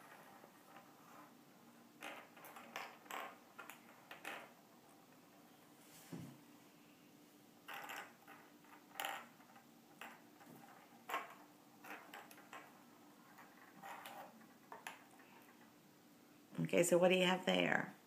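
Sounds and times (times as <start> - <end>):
ornament balls clicking on table: 2.0 - 4.6, 7.6 - 15.7.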